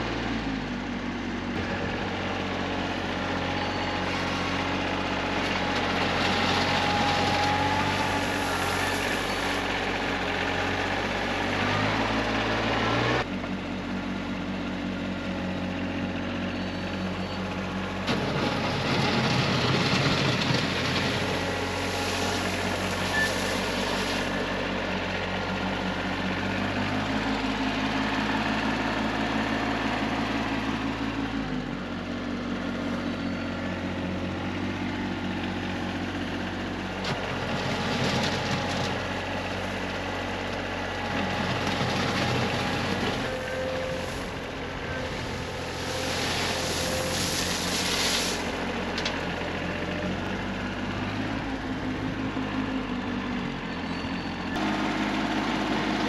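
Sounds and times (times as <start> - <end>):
tractor engine running: 0.0 - 56.0
gravel scooped and poured: 18.5 - 24.4, 45.0 - 48.6.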